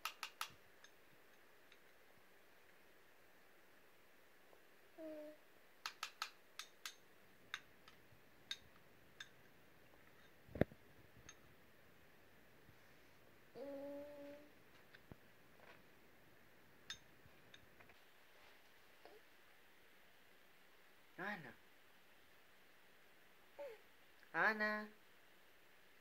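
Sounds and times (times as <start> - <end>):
baby humming: 5.0 - 5.4, 13.5 - 14.5, 23.6 - 23.8.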